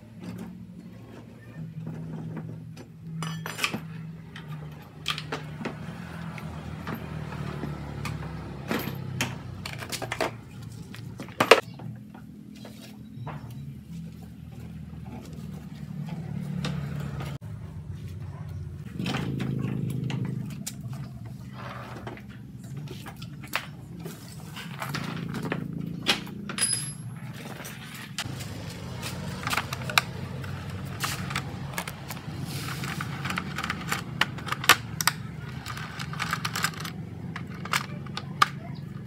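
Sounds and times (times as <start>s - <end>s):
metal tools clinking and knocking: 1.9s - 11.6s, 22.1s - 39.0s.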